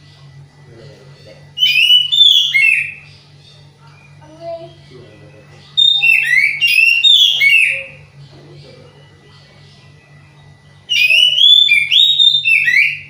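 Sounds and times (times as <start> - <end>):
bird singing whistled notes: 1.6 - 4.2, 5.7 - 8.1, 10.2 - 13.0.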